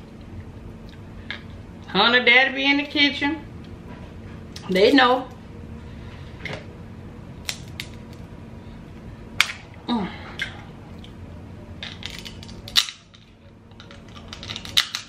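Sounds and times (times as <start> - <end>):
crab shells cracking: 7.4 - 8.2, 11.8 - 13.2, 13.8 - 15.0.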